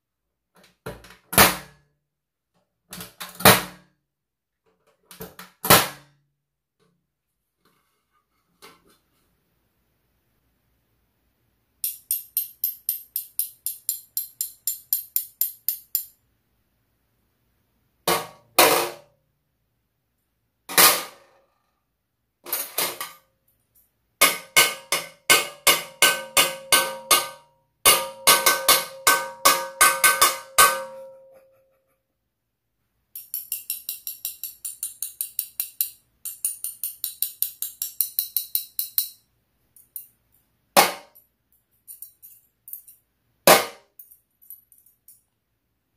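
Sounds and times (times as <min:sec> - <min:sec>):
metal utensils tapping on a tray: 0:11.8 - 0:16.2, 0:33.2 - 0:39.2.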